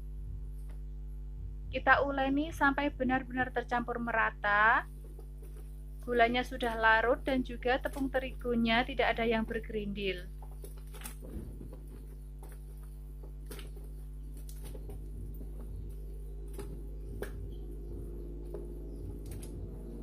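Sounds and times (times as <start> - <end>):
hand squelching wet batter: 10.3 - 17.4
sharp clicks: 18.5 - 19.6.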